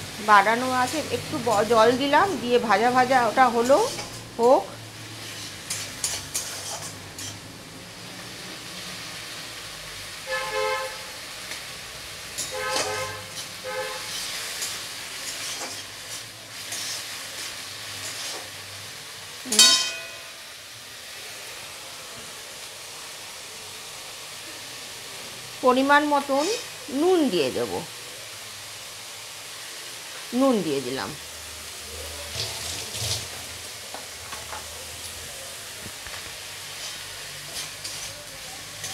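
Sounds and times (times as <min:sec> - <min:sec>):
paste sizzling in a pan: 0:00.0 - 0:38.9
metal spatula scraping: 0:03.4 - 0:07.5, 0:12.3 - 0:18.6, 0:32.1 - 0:33.5, 0:36.6 - 0:38.9.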